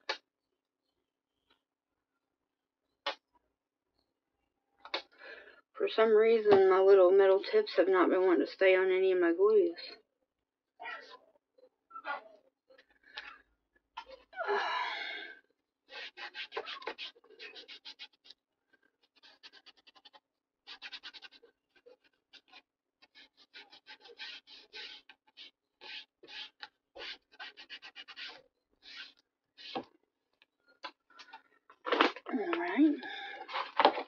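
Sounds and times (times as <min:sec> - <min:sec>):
paper rubbing and scraping: 0:15.9 - 0:18.3, 0:19.0 - 0:29.8.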